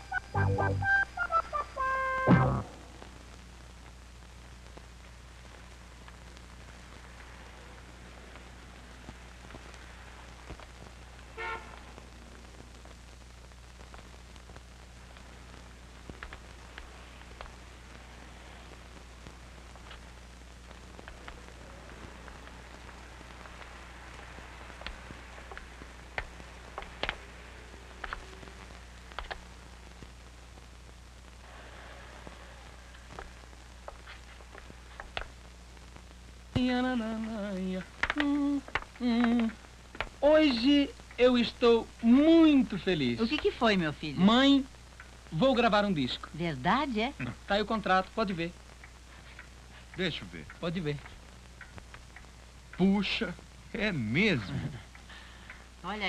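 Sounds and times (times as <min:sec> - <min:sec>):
electrical hum and hiss: 0:00.0 - 0:56.0
faint clicks: 0:16.0 - 0:41.3, 0:48.5 - 0:53.3, 0:54.8 - 0:55.8.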